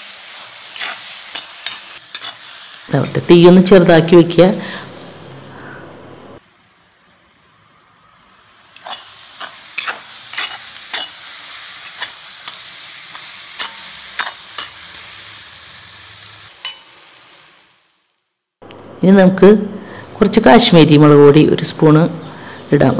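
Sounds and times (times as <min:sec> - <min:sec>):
masala sizzling in a pan: 0:00.0 - 0:18.7
steel spatula scraping a pan: 0:00.7 - 0:02.5, 0:08.8 - 0:14.8, 0:16.6 - 0:16.9.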